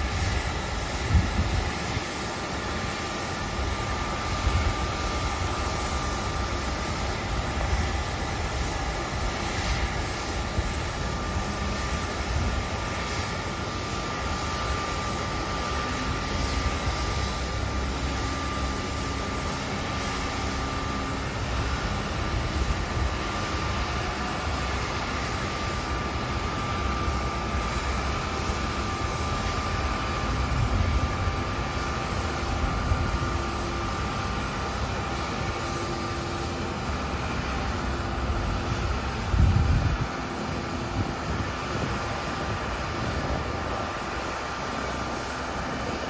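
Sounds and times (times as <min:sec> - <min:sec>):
jet turbine whine: 0:00.0 - 0:46.0.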